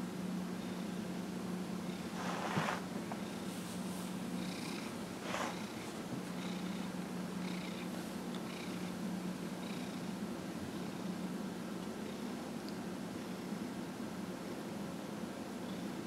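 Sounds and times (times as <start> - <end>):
cat purring: 1.8 - 11.1.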